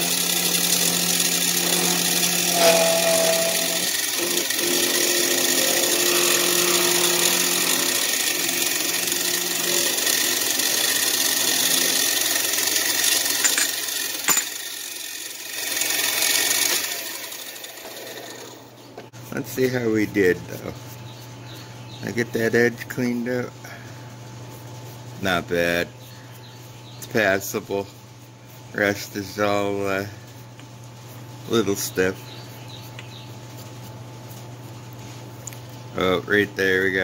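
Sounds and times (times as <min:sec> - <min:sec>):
milling machine cutting metal: 0:00.0 - 0:18.6.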